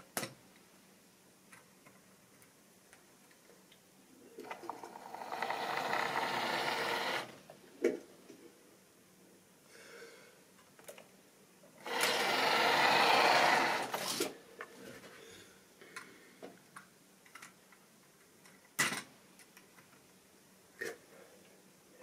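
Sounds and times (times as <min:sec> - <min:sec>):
model train motor whirring: 0:04.5 - 0:07.4, 0:11.8 - 0:14.2.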